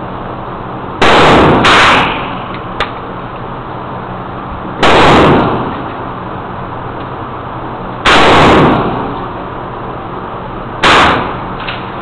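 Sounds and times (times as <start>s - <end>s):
gunshots echoing indoors: 1.0s - 2.5s, 4.8s - 5.8s, 8.0s - 9.2s, 10.8s - 11.6s.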